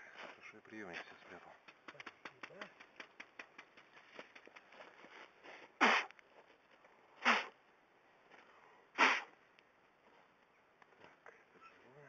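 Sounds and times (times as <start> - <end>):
sharp bursts of breath: 5.4 - 6.1, 7.2 - 7.6, 8.6 - 9.3.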